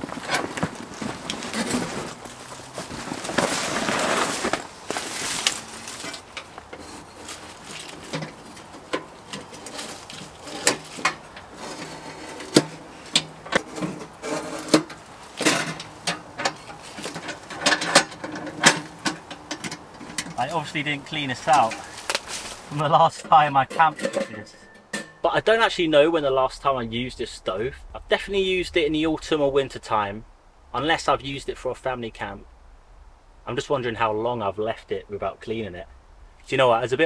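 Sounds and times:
rustling: 0:00.0 - 0:36.7
metal parts knocking and clinking: 0:05.4 - 0:20.4, 0:23.7 - 0:25.3.

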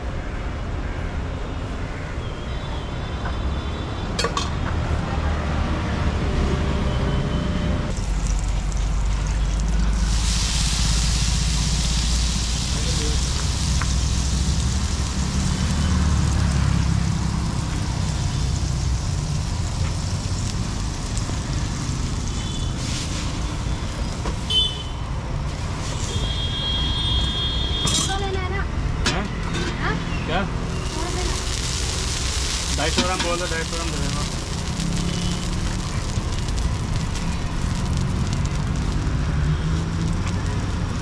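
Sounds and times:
road traffic rumble: 0:00.0 - 0:41.0
water sizzling on hot griddle: 0:07.9 - 0:28.5, 0:29.6 - 0:41.0.

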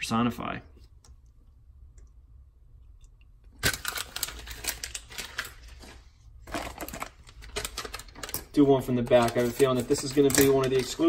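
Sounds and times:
foil packet crinkling: 0:03.6 - 0:11.0.

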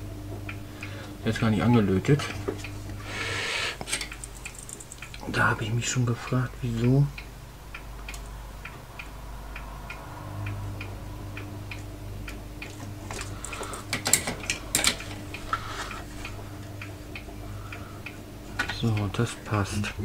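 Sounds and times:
faint hum: 0:00.0 - 0:20.0
light ticking: 0:00.3 - 0:03.0, 0:03.8 - 0:20.0
metal power supply clattering: 0:12.6 - 0:15.4.

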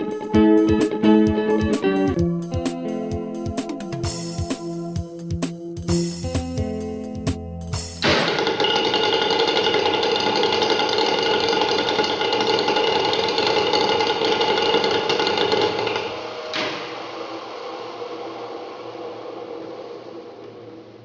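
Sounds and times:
engine mechanical rattle and whine: 0:08.0 - 0:21.0.

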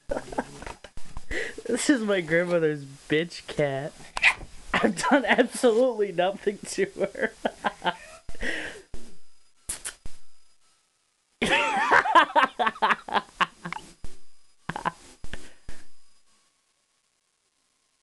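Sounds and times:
cat yowling and growling: 0:07.8 - 0:08.3.

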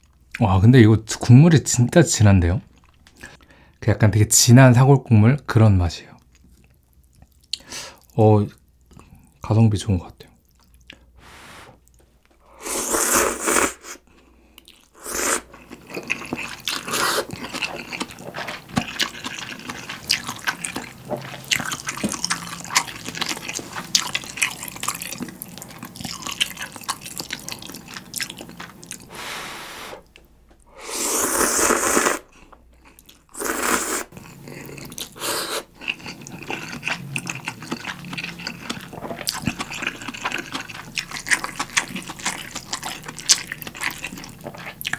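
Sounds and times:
noodle slurping: 0:12.6 - 0:14.0, 0:15.0 - 0:24.8, 0:28.9 - 0:30.2, 0:30.8 - 0:32.4, 0:33.3 - 0:44.9
wet chewing: 0:14.1 - 0:29.2, 0:31.2 - 0:44.9.

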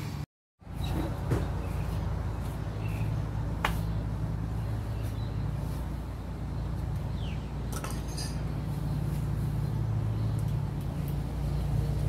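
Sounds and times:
metal tools clinking: 0:07.7 - 0:08.5.

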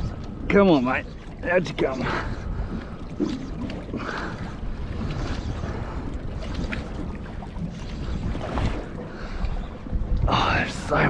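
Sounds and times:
wind noise on microphone: 0:00.0 - 0:00.5, 0:02.0 - 0:11.0
water washing against hull: 0:00.0 - 0:11.0.

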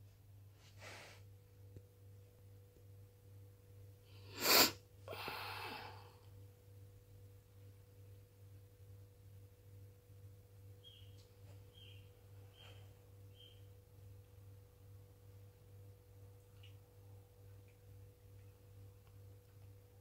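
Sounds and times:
person sneezing: 0:04.3 - 0:06.0.

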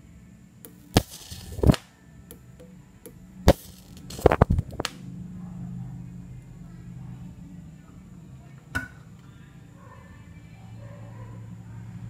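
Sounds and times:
electric arc cracking: 0:00.7 - 0:02.7, 0:03.4 - 0:05.0.

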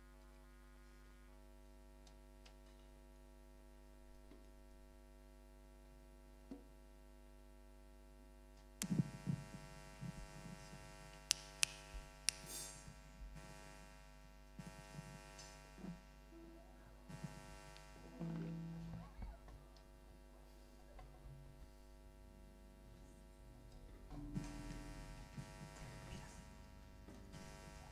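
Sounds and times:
electrical hum: 0:00.0 - 0:27.9
sharp clicks: 0:08.8 - 0:12.6.

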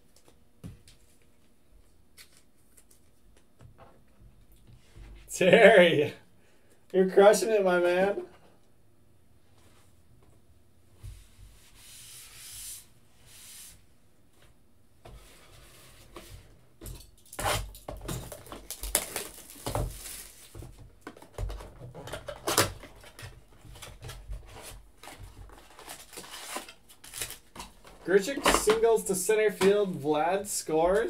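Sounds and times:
plastic wrap crinkling and tearing: 0:18.3 - 0:20.6, 0:25.0 - 0:27.8.

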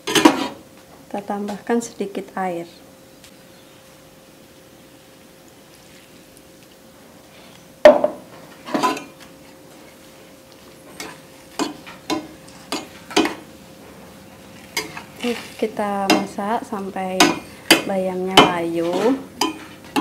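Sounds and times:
metal spatula scraping a pan: 0:18.8 - 0:20.0.

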